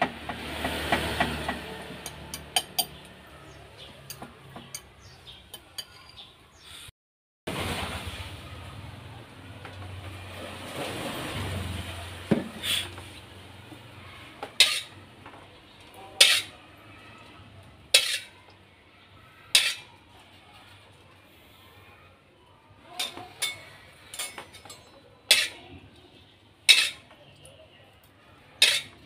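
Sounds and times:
metal spatula clinking on wok: 0:14.6 - 0:14.9, 0:19.6 - 0:19.9, 0:23.0 - 0:25.6, 0:26.7 - 0:27.0, 0:28.6 - 0:29.0.

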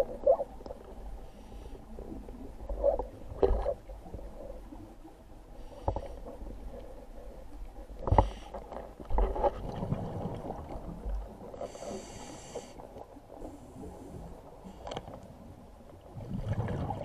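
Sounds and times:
exhaled bubbles rushing: 0:16.1 - 0:17.0.

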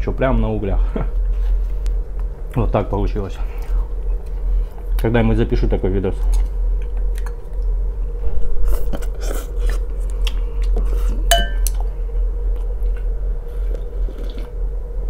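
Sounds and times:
steady low hum: 0:00.0 - 0:15.0
person chewing and slurping: 0:08.4 - 0:11.8, 0:12.5 - 0:14.6
ringing clink: 0:11.3 - 0:11.7.

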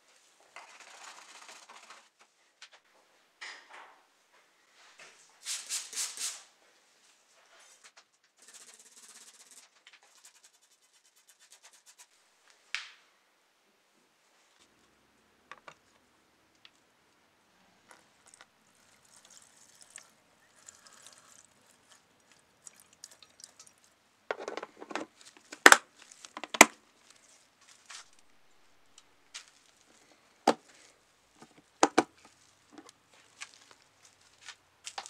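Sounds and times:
liquid trickling while poured: 0:17.9 - 0:24.0.

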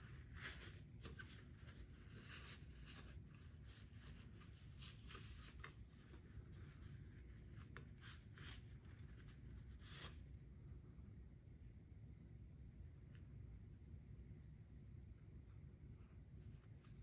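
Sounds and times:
scratching and scraping strokes: 0:00.0 - 0:10.2
steady low hum: 0:00.0 - 0:17.0.

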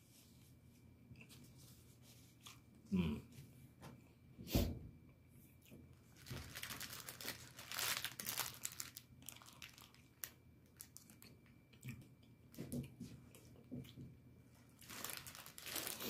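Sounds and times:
food packaging crinkling: 0:06.0 - 0:11.5, 0:14.5 - 0:16.0.

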